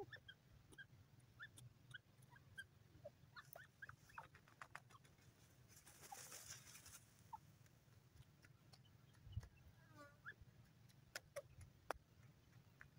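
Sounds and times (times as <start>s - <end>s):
faint bird chirps: 0.0s - 5.2s
soft hissing rustle: 5.2s - 7.4s.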